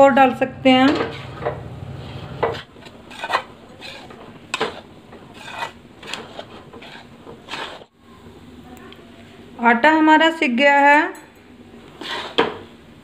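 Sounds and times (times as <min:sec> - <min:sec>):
metal spatula scraping a pan: 0:02.0 - 0:07.9, 0:12.0 - 0:12.6.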